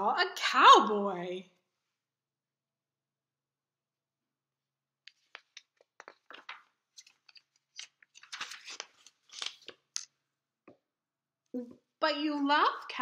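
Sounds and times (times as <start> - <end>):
book pages turning: 5.1 - 10.2.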